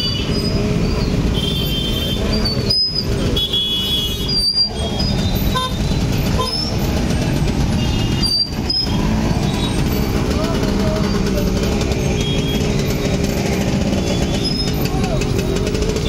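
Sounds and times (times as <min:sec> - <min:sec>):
vehicle horns tooting: 0:00.0 - 0:06.8, 0:07.6 - 0:09.9, 0:11.9 - 0:13.2, 0:13.8 - 0:15.2
motorcycle engines running: 0:00.0 - 0:16.0
steady traffic noise: 0:00.0 - 0:16.0.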